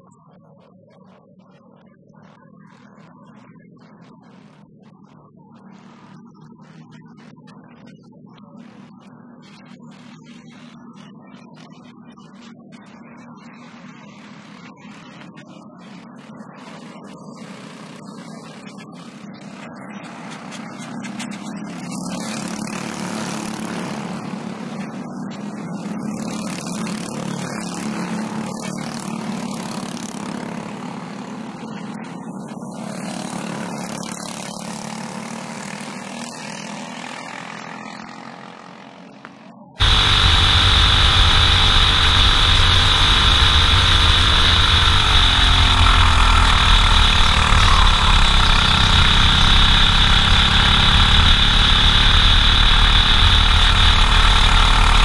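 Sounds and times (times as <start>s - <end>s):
kart engines racing past: 20.1s - 24.7s, 39.8s - 55.0s
kart engine high whine: 39.8s - 55.0s.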